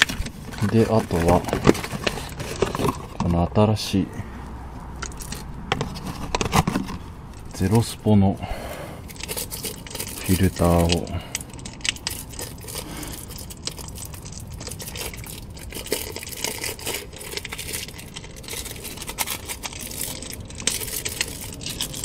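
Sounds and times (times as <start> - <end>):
plastic wrapping crinkling and tearing: 0.0 - 3.4, 9.0 - 22.0.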